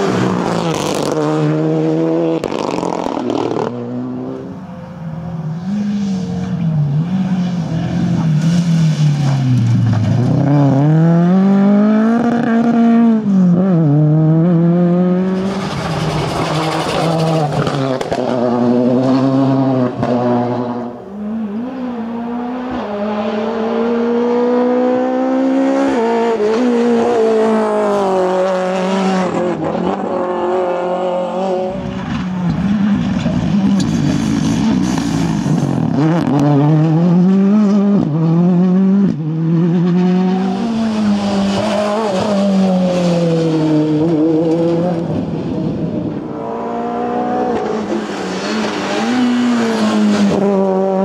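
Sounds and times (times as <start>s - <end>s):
rally car engines revving: 0.0s - 51.0s.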